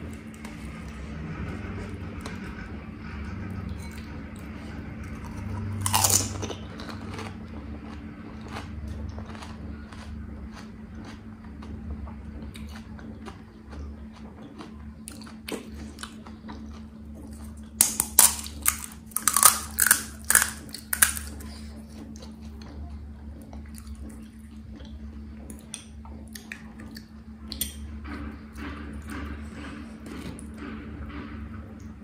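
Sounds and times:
quiet chewing: 3.3 - 27.8
crisp crackles of fried shells breaking: 5.8 - 6.4, 17.8 - 21.4.

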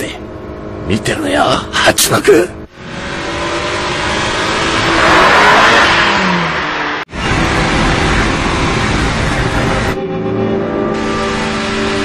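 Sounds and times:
sports car engines at speed: 2.5 - 12.0.

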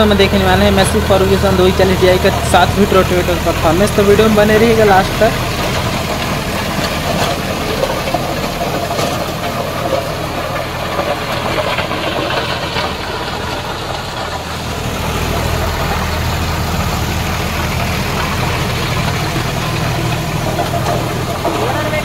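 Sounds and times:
diesel tractor engine running: 0.0 - 22.0
rotavator blades churning soil: 0.0 - 22.0.

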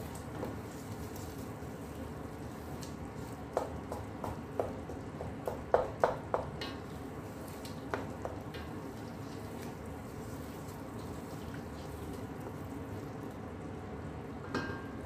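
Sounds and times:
wooden spatula stirring thick sauce: 0.0 - 13.1
spatula knocking against pot: 3.5 - 6.8, 7.9 - 8.7.

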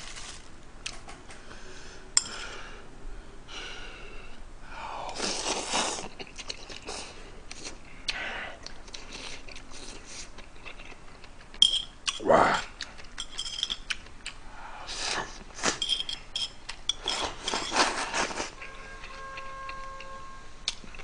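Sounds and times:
person slurping noodles: 5.1 - 6.2
person chewing: 5.1 - 15.8, 16.7 - 21.0.

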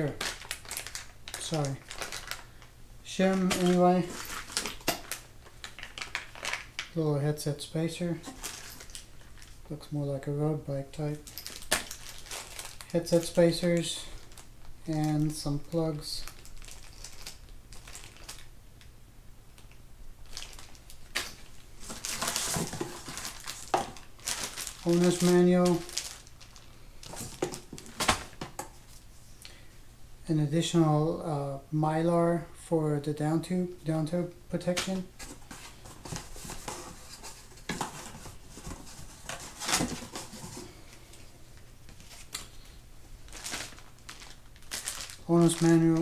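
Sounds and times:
packaging rustling: 0.0 - 7.0, 8.1 - 9.6, 11.2 - 18.5, 19.6 - 29.0, 34.6 - 46.0
plastic bags crinkling: 0.0 - 7.0, 8.2 - 9.7, 11.2 - 18.5, 19.6 - 29.0, 41.9 - 46.0
parts clattering in box: 3.3 - 6.6, 8.2 - 9.0, 20.3 - 26.2.

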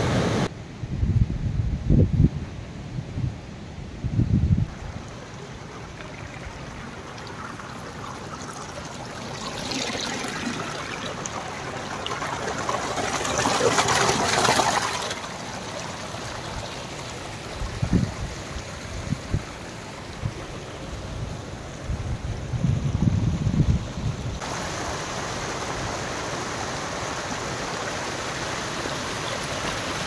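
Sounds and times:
stream splashing over rocks: 4.7 - 21.8, 24.4 - 30.0.

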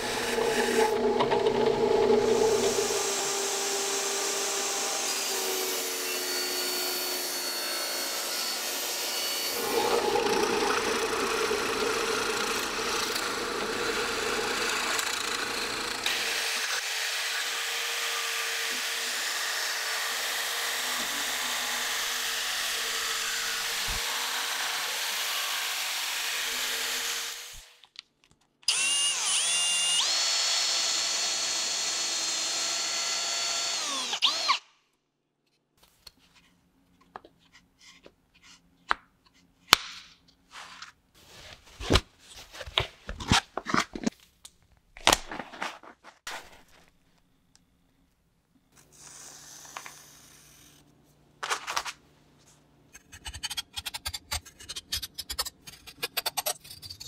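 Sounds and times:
drill press boring into wood: 0.0 - 5.6, 9.5 - 18.1, 28.7 - 34.6
jigsaw cutting plywood: 0.0 - 27.8, 28.7 - 34.6.

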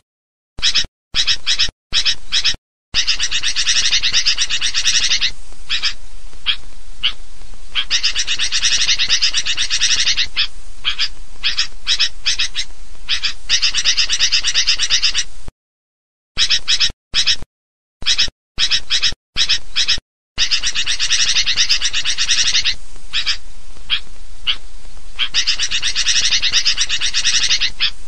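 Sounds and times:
bulbul chattering calls: 0.6 - 15.3, 16.4 - 17.4, 18.0 - 28.0.

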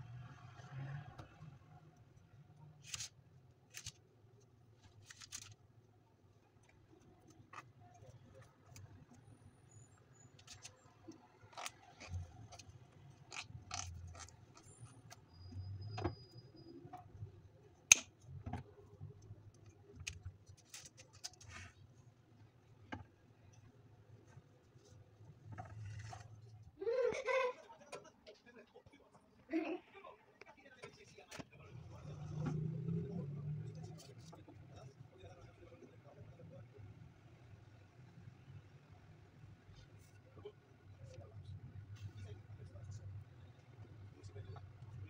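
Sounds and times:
paper rustling: 2.8 - 4.0, 4.8 - 5.6.

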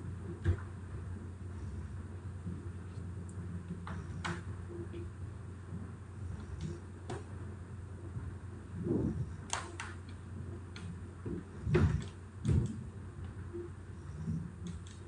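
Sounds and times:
steady low hum: 0.0 - 15.0
computer mouse clicks: 9.5 - 10.9, 14.6 - 15.0.

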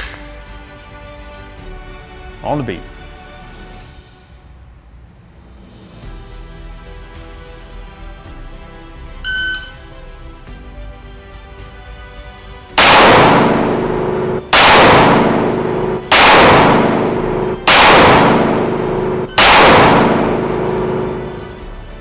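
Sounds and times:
shot timer beep: 9.2 - 9.8
pistol shots with echo: 12.8 - 21.6.

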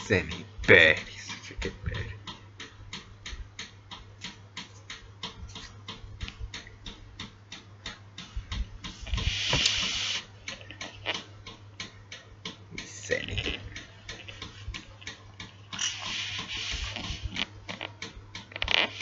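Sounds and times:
low steady hum: 0.0 - 19.0
rapid ticking: 0.0 - 19.0
burst of hiss: 9.1 - 10.2, 15.9 - 17.4.

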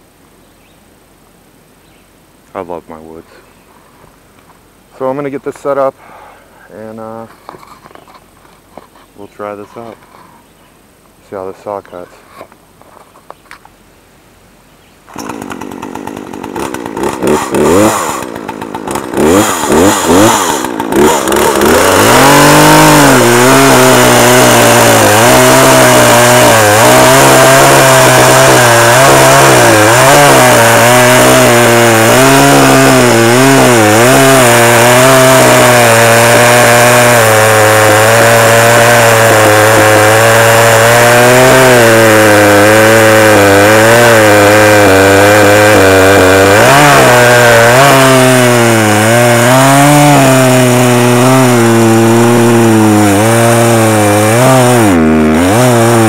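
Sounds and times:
chainsaw cutting log: 15.1 - 56.0.

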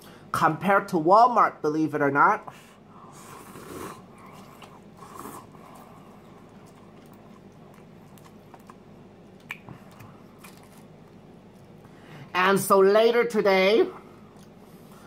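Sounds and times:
person chewing noodles: 3.1 - 11.9.

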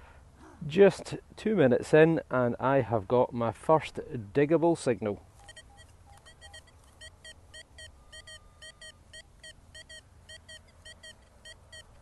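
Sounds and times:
metal detector high beeps: 5.4 - 12.0.

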